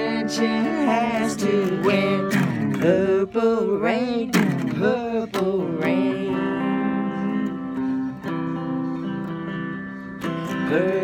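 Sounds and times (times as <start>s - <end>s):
man singing with vibrato: 0.0s - 8.3s, 10.3s - 11.0s
strummed electric guitar chords: 0.0s - 11.0s.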